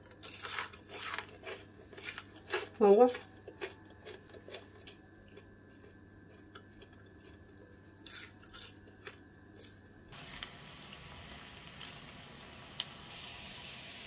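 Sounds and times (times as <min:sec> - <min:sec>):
food sizzling in hot oil: 0:10.1 - 0:14.0.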